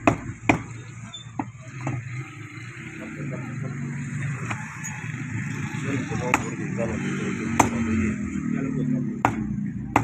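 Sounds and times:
cleaver chopping onto wooden block: 0.0 - 0.8, 7.5 - 8.0, 9.2 - 10.0.

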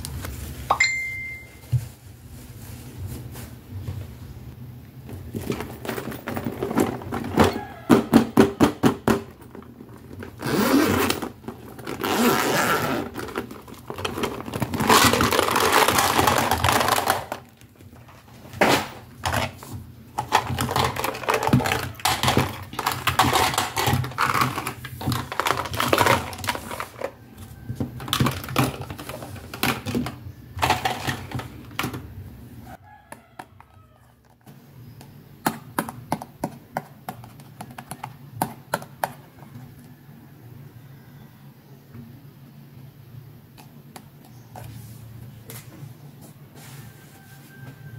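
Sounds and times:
plastic pouch crinkling: 10.2 - 17.6.

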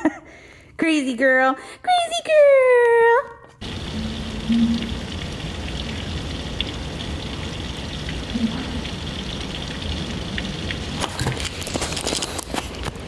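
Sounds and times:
steady rain on grass and trees: 3.6 - 13.0.

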